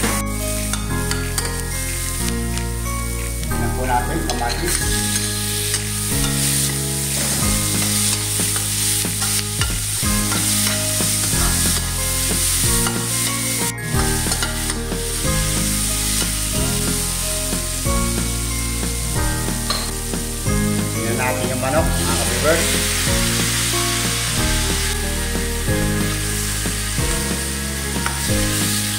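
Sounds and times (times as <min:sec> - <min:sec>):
metal spoon scraping wok: 0:00.0 - 0:03.6, 0:04.2 - 0:17.6, 0:19.5 - 0:20.9
vegetables sizzling in hot oil: 0:00.0 - 0:28.9.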